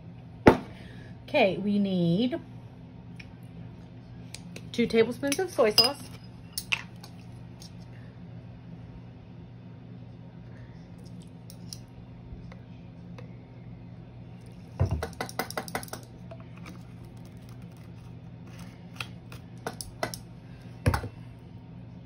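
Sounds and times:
steady low hum: 0.0s - 22.0s
metal spoon clinking on ceramic bowl: 5.7s - 6.8s.

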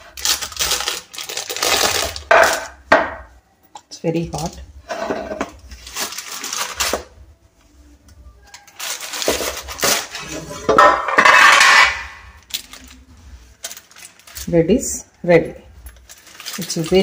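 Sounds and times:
metal tin clattering on wooden board: 10.6s - 12.1s.

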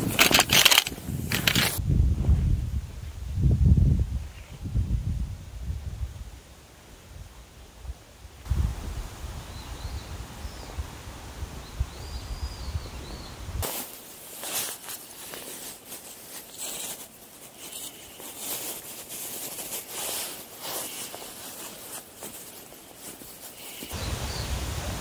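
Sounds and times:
wind buffeting microphone: 0.0s - 13.6s, 23.9s - 25.0s
faint high bird chirps: 11.6s - 13.5s
rustling and scuffing of tent: 13.6s - 24.1s.

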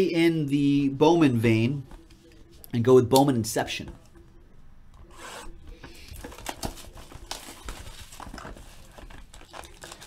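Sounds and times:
shrink wrap ripping and crinkling: 6.2s - 10.0s.

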